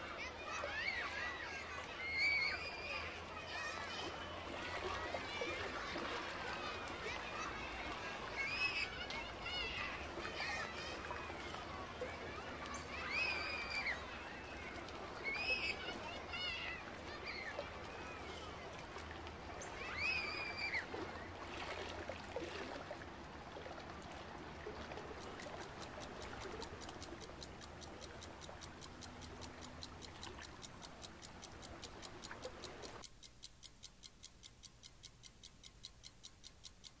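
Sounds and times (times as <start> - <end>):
rapid even ticking: 25.2 - 37.0.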